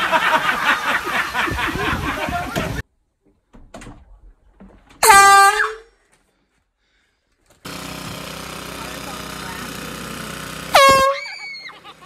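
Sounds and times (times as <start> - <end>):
noisy commotion: 0.0 - 2.8
loud air horn blast: 5.0 - 5.8, 10.7 - 11.3.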